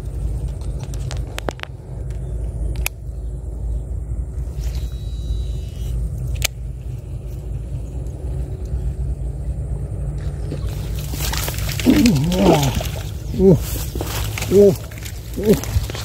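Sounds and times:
steady low rumble: 0:00.0 - 0:16.0
rustling splashy noise: 0:10.2 - 0:16.0
short wavering vocal sound: 0:11.8 - 0:13.8, 0:14.4 - 0:15.8.

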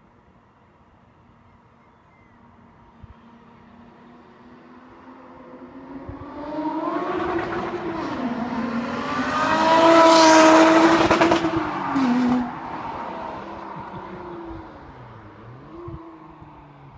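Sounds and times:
car engine accelerating past: 0:04.3 - 0:16.6.

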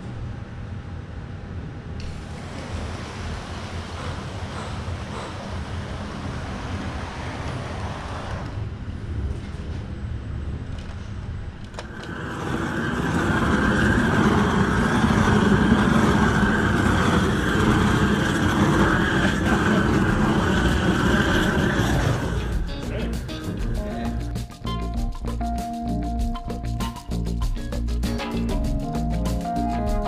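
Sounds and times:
torch roaring: 0:02.0 - 0:09.6, 0:10.2 - 0:23.8
low rumble: 0:06.2 - 0:24.4.

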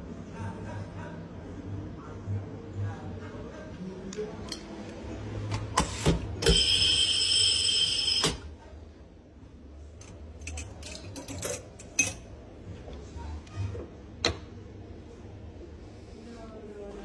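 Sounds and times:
glassware clinking: 0:10.4 - 0:12.3.

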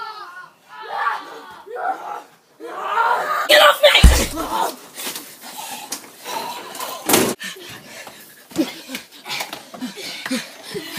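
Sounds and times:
people climbing a wooden fence: 0:03.9 - 0:10.9
heavy thump: 0:04.0 - 0:04.5
sharp bang: 0:04.0 - 0:04.5.

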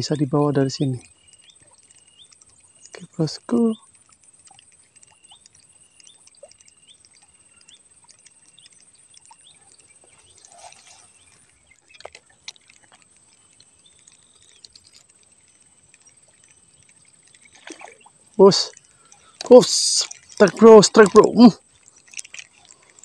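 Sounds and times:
small bird chirping: 0:00.1 - 0:22.8
soft clicks: 0:01.0 - 0:23.0
brief rustle: 0:10.1 - 0:18.0.

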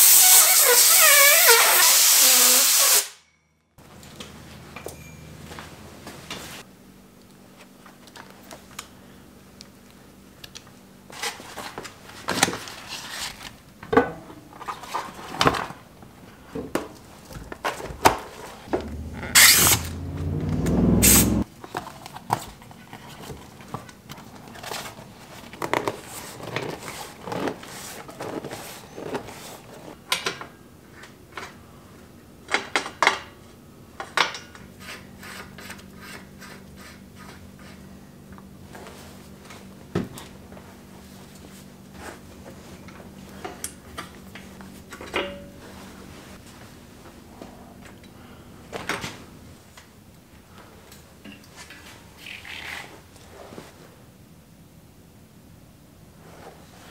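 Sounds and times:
loud rushing noise: 0:18.7 - 0:21.4.

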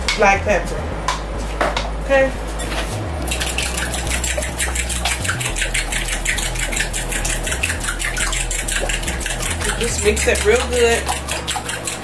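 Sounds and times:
batter beaten in glass bowl: 0:03.2 - 0:12.0.

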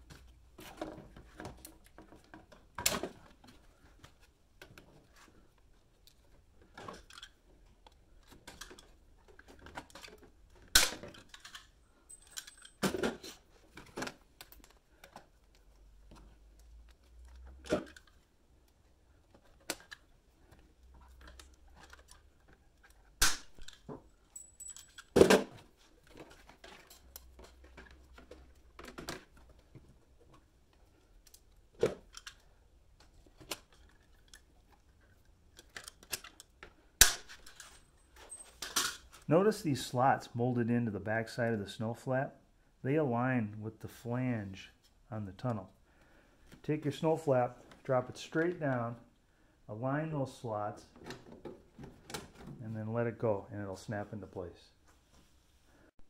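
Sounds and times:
clicking and rattling of handling: 0:00.0 - 0:39.3.

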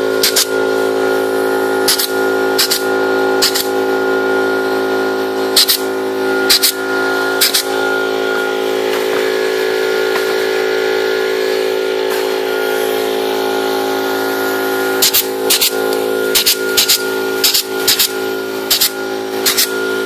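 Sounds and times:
steady mechanical hum: 0:00.0 - 0:20.0
pneumatic clip gun clicks: 0:00.2 - 0:00.5, 0:01.9 - 0:02.8, 0:03.4 - 0:03.7, 0:15.0 - 0:18.1, 0:18.7 - 0:19.7.

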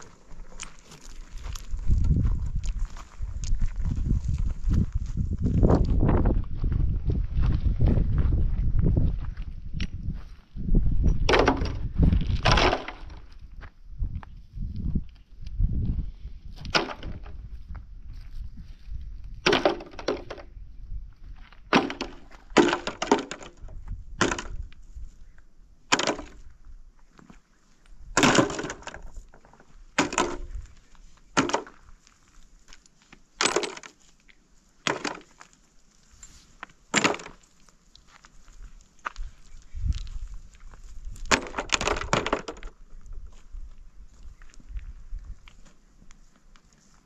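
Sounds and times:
wood cracking: 0:11.3 - 0:13.3, 0:16.6 - 0:17.4, 0:19.4 - 0:20.5, 0:21.7 - 0:24.8, 0:25.9 - 0:26.5, 0:28.1 - 0:34.0, 0:34.8 - 0:35.6, 0:36.6 - 0:38.2, 0:41.1 - 0:42.8.

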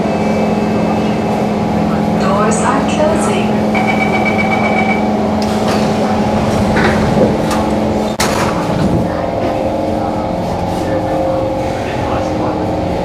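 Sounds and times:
train doors closing: 0:00.0 - 0:09.9
train hum: 0:00.0 - 0:13.0
steady high tone: 0:02.2 - 0:05.4.

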